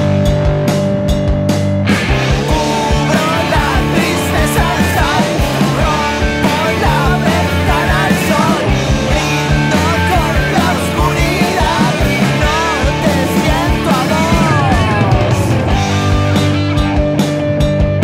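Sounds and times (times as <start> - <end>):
rock band playing: 0.0 - 18.0
man singing: 2.3 - 16.4.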